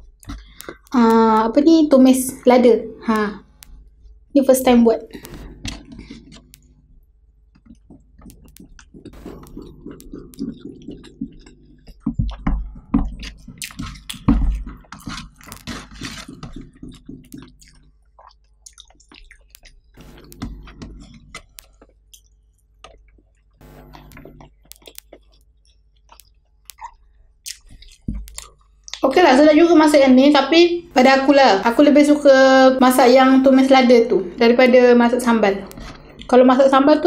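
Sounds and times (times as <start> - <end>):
person chewing food: 0.0 - 1.0, 5.1 - 29.0, 35.7 - 36.4
sharp mouth clicks: 0.2 - 1.0, 5.1 - 6.7, 7.5 - 15.7, 16.3 - 29.0.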